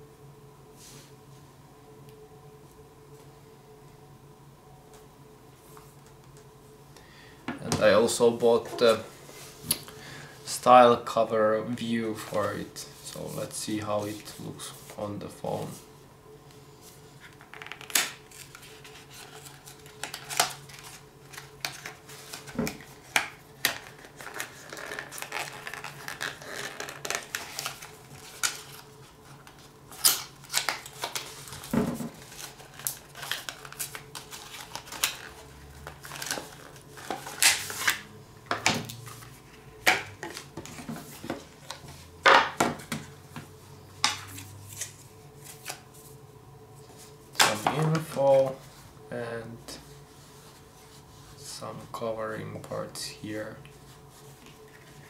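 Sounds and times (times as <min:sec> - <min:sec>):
packaging rustling: 0:17.2 - 0:38.0.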